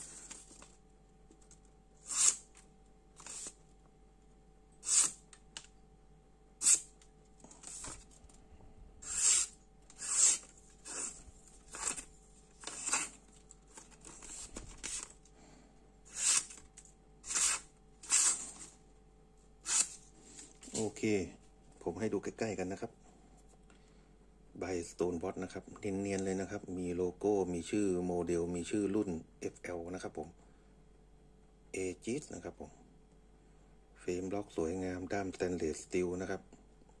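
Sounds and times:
knife slicing paper: 2.0s - 2.5s, 3.2s - 3.6s, 4.8s - 5.2s, 6.6s - 6.9s, 9.0s - 13.2s, 16.1s - 16.6s, 17.2s - 18.6s, 19.6s - 20.0s.

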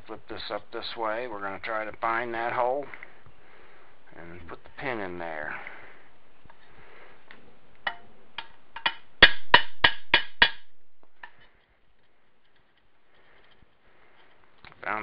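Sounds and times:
hammer tapping metal: 7.9s - 11.5s.

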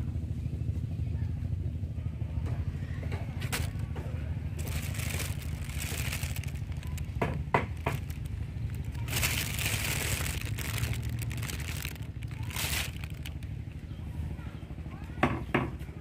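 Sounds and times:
crinkling and scraping handling noise: 3.3s - 13.6s
steady low rumble: 3.4s - 14.8s.

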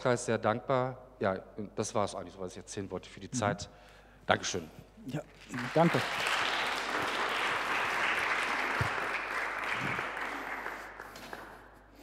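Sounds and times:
congregation applauding: 5.3s - 12.0s.

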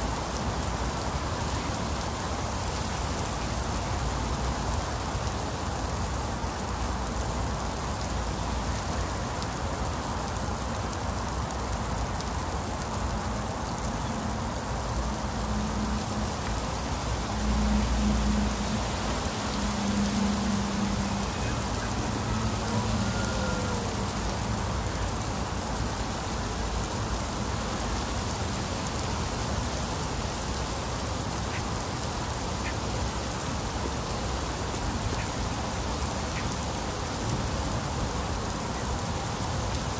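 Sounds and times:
heavy rain on concrete and foliage: 0.0s - 39.9s.

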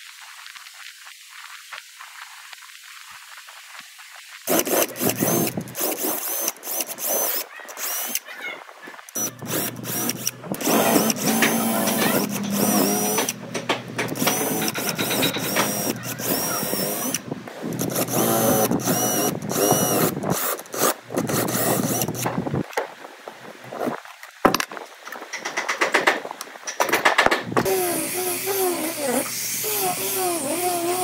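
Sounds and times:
cordless drill boring into wood: 4.5s - 8.2s, 9.2s - 22.3s, 27.6s - 31.0s.

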